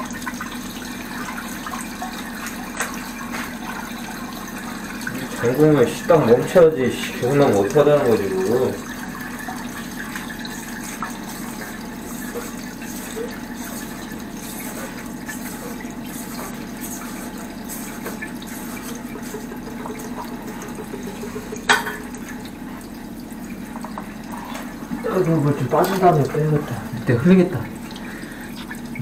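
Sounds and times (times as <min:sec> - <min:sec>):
water running and splashing: 0:00.0 - 0:29.0.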